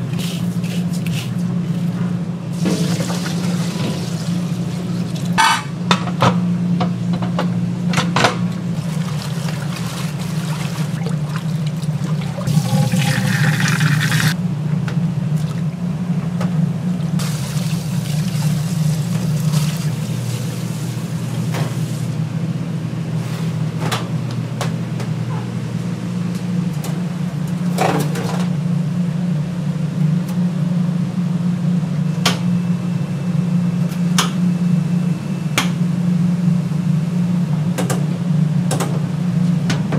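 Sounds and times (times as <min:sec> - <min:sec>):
steady low hum: 0:00.0 - 0:39.9
water running and splashing: 0:08.8 - 0:14.4.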